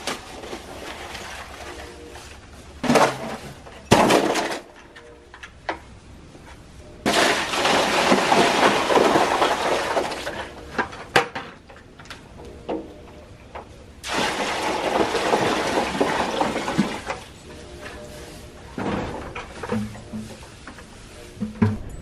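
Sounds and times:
water gushing into tub: 14.1s - 17.1s.

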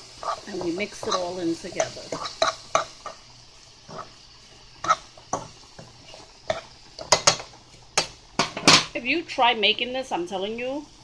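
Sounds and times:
faint sizzle: 0.0s - 11.0s
utensil knocking on frying pan: 7.0s - 8.9s.

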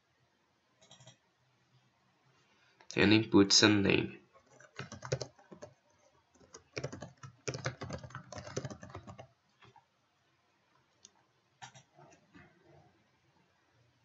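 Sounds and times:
typing on keyboard: 0.8s - 1.2s, 4.4s - 9.8s, 11.6s - 12.0s.

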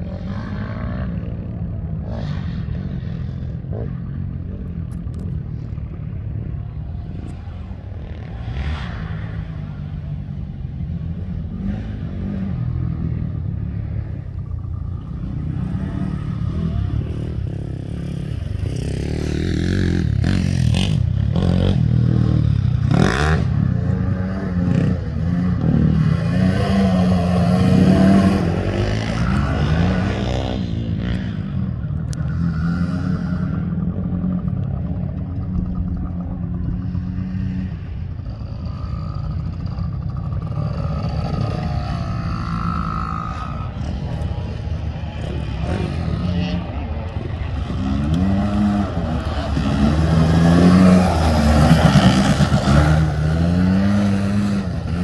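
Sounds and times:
atv engine revving: 0.0s - 55.0s
dirt bike engine running: 32.8s - 55.0s.

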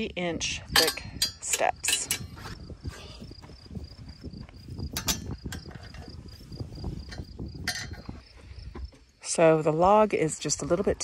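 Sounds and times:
metal frame clicks and rattles: 0.7s - 2.6s, 4.9s - 6.4s, 7.0s - 8.1s.

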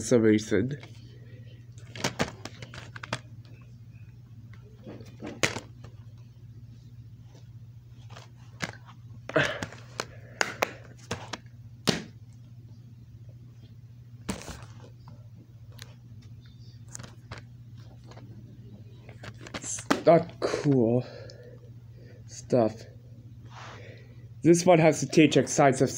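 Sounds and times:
steady low hum: 0.0s - 25.9s
plastic cases clacking: 1.8s - 3.3s, 4.9s - 5.7s, 19.1s - 20.2s.

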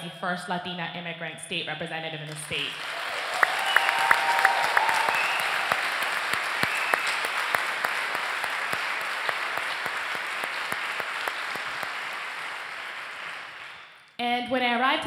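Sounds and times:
audience applauding: 2.6s - 14.1s.

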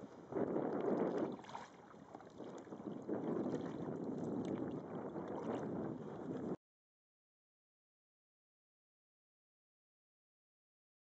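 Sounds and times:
water sloshing against canoe hull: 0.2s - 6.6s.

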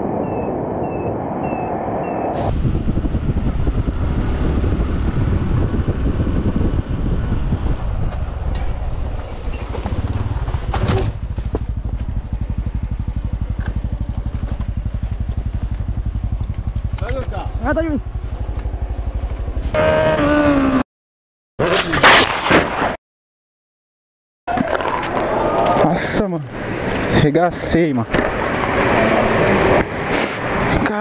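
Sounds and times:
brief loud rush: 2.3s - 3.2s
small motorcycle engine running: 9.7s - 20.5s.

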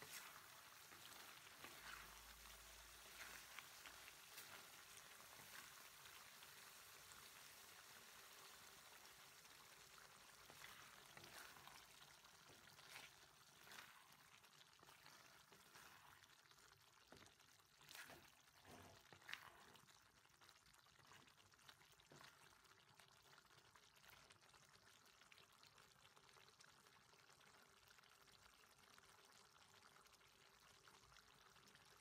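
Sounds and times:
wooden spatula stirring food: 0.0s - 24.3s
food simmering in a wok: 0.0s - 32.0s.

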